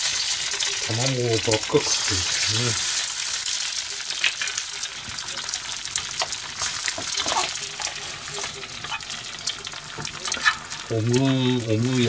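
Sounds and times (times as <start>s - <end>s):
food sizzling in frying pans: 0.0s - 12.0s
spatula scraping and tapping pan: 6.2s - 12.0s.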